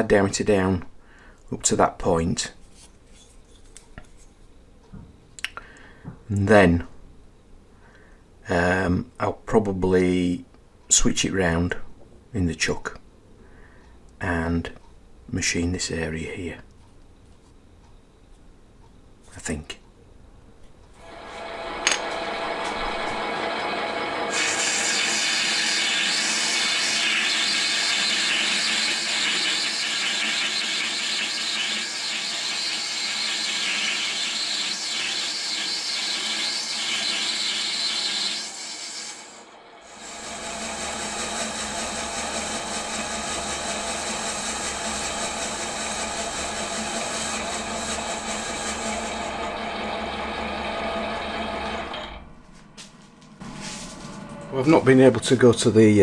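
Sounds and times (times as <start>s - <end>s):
cutting tool hissing on metal: 21.0s - 49.4s
metal lathe whining: 21.0s - 52.3s.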